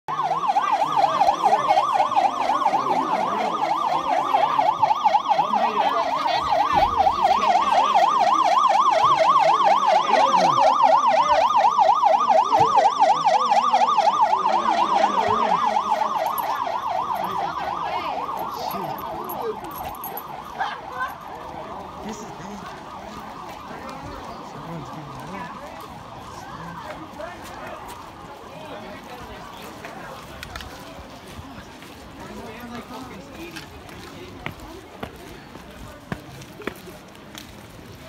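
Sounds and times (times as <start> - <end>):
fire alarm warbling siren: 0.1 - 30.3.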